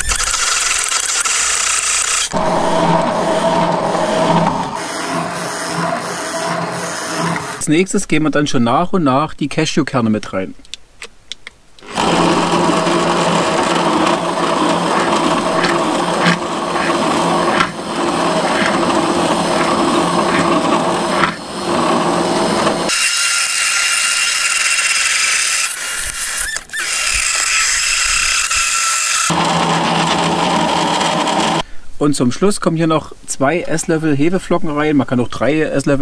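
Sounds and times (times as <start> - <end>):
immersion blender running in jar: 0.0 - 7.6, 11.8 - 31.6.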